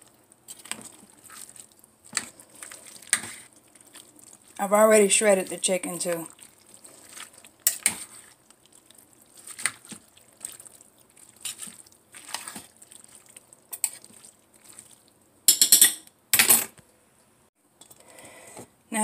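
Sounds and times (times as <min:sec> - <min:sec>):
wet squelches of stirring: 0:00.0 - 0:16.2
utensil scraping and clinking: 0:06.8 - 0:08.2.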